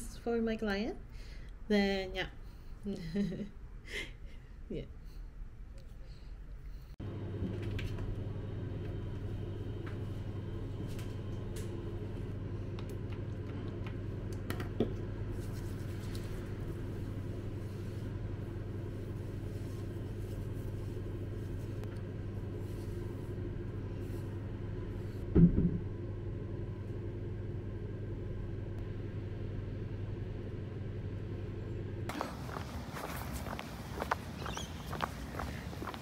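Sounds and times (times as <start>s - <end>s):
low mechanical rumble and hum: 0.0s - 36.0s
loud thump: 25.3s - 25.9s.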